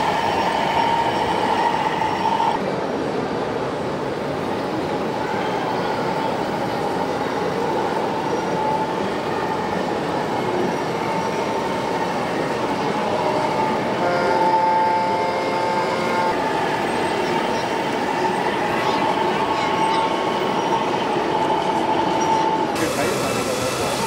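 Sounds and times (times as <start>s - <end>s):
horn sounding: 13.4s - 16.6s.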